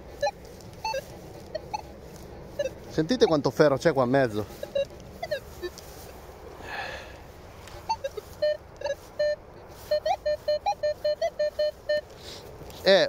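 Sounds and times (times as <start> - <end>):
metal detector beeps: 0.1 - 1.9, 2.5 - 3.4, 4.6 - 5.8, 7.8 - 12.2.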